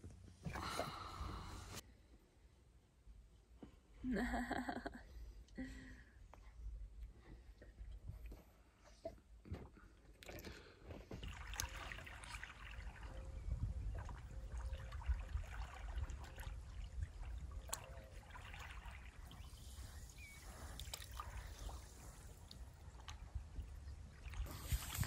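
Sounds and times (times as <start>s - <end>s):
water trickling and splashing: 10.1s - 25.0s
small waves lapping on shore: 11.2s - 13.4s, 14.0s - 25.0s.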